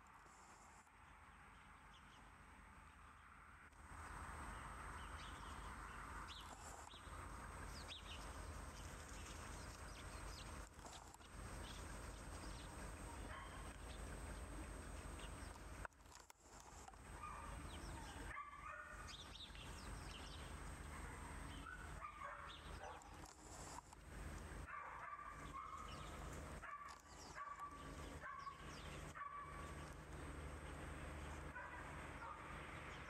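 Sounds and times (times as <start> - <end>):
puppies yipping: 10.8 - 15.6, 17.1 - 19.2, 20.8 - 23.8, 24.6 - 30.0.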